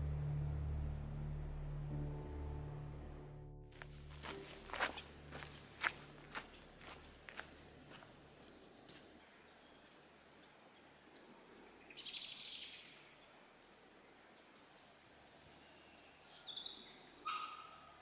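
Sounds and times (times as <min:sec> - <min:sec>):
birds calling: 0:16.2 - 0:18.0.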